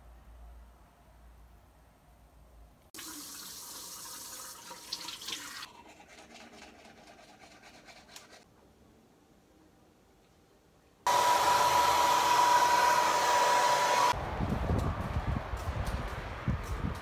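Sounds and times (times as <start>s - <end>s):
tap water running into washbasin: 3.0s - 5.9s
toothbrush scrubbing teeth: 5.6s - 8.4s.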